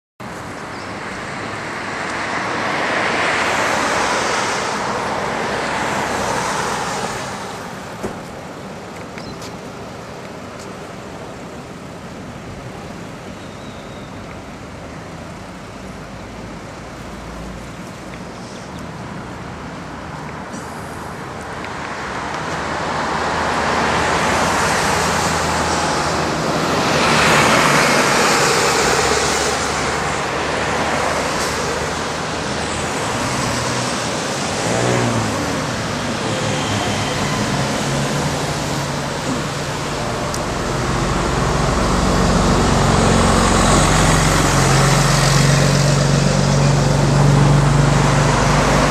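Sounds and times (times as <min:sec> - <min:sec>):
passing vehicles: 0:00.2 - 0:48.9.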